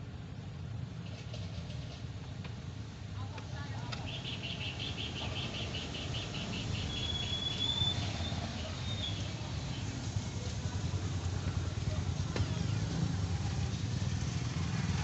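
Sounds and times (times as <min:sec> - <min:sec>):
high-pitched chirping: 0:04.1 - 0:09.1
thin whistle: 0:06.6 - 0:09.2.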